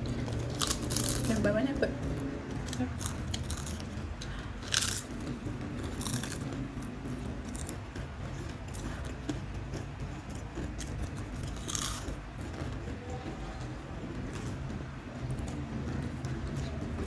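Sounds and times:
potato chips crunching: 0.2s - 1.6s, 2.7s - 7.8s, 8.7s - 13.6s.

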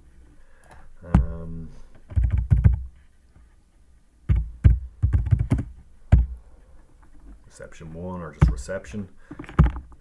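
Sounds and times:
computer keyboard typing: 2.1s - 2.8s, 4.3s - 5.7s.

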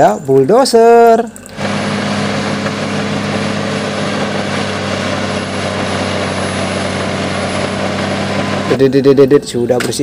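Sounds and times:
bulldozer diesel engine droning: 1.6s - 9.0s.

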